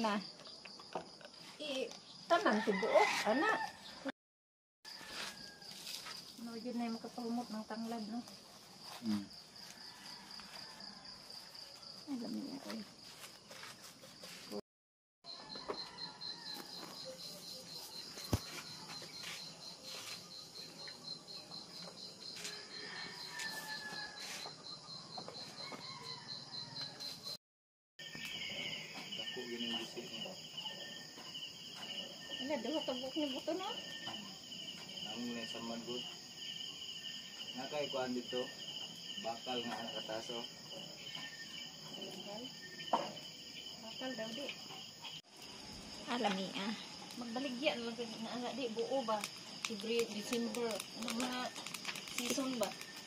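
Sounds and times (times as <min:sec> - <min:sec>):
cricket chirping: 0:04.9 - 0:14.6, 0:15.2 - 0:27.4, 0:28.0 - 0:53.0.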